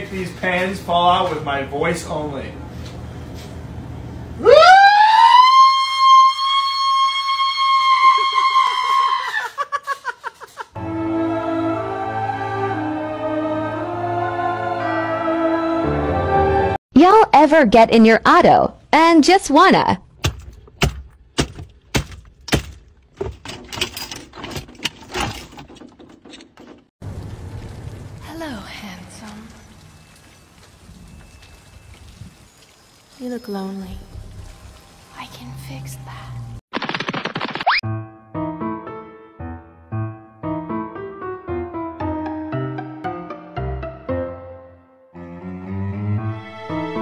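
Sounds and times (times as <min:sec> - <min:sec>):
shifter cracking and rattling: 0:20.3 - 0:27.0.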